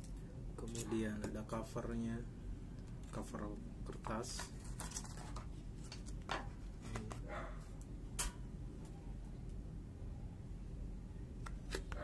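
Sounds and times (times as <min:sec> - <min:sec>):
paper rustling: 0:04.1 - 0:07.2.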